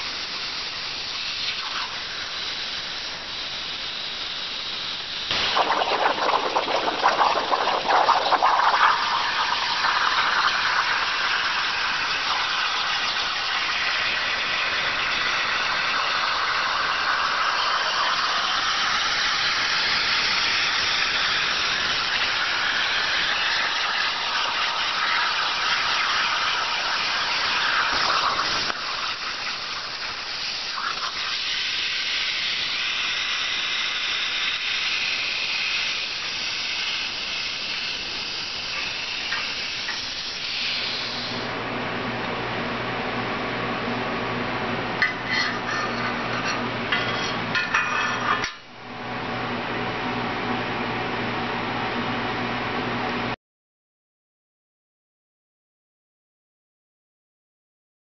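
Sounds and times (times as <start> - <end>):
plasma cutter arc hissing: 0.0 - 41.4.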